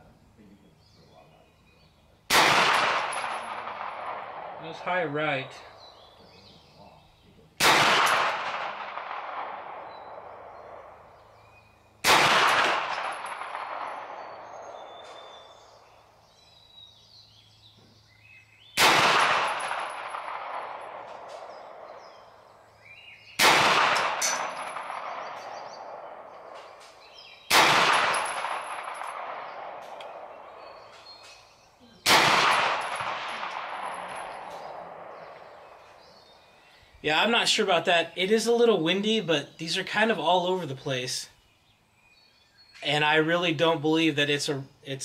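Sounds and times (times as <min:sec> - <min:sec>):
gunshots with long echo: 0:02.3 - 0:05.9, 0:07.6 - 0:11.3, 0:12.0 - 0:16.0, 0:18.8 - 0:22.5, 0:23.4 - 0:31.2, 0:32.0 - 0:36.5.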